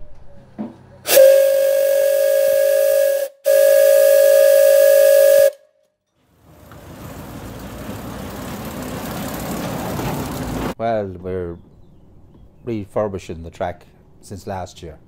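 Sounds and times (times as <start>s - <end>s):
steam hissing: 1.1s - 5.5s
steam locomotive whistle: 1.1s - 5.7s.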